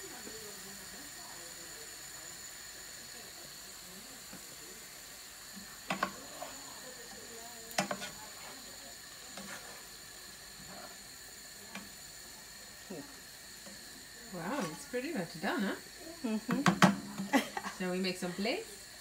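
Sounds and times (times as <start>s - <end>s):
vegetables sizzling in a frying pan: 0.0s - 19.0s
wooden spoon knocking on pan: 5.9s - 6.2s, 16.4s - 17.4s.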